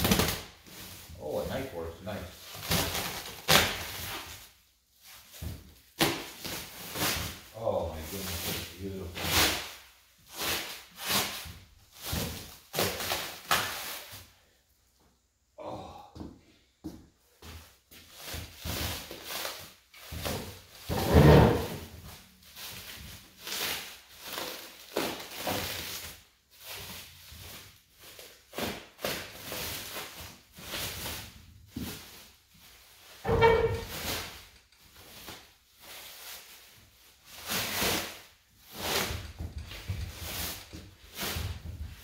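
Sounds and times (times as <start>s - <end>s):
plastic sheeting rustling: 0.0s - 14.5s, 18.0s - 42.0s.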